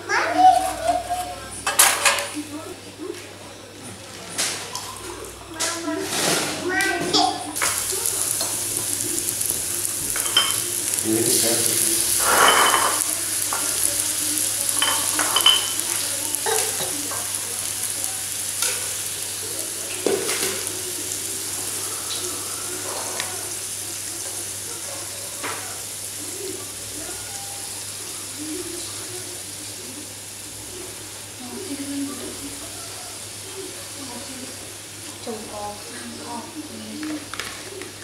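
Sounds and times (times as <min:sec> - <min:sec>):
steady hiss: 0:07.6 - 0:36.8.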